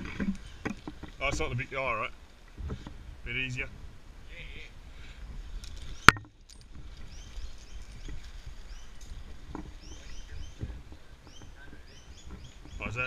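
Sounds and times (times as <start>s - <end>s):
small birds chirping: 5.5s - 13.0s.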